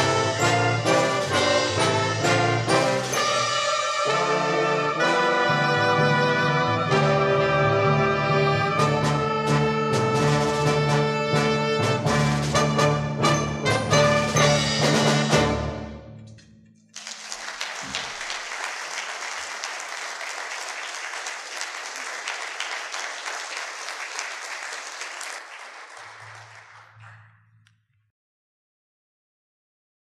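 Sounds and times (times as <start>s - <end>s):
audience applause: 16.9s - 27.4s.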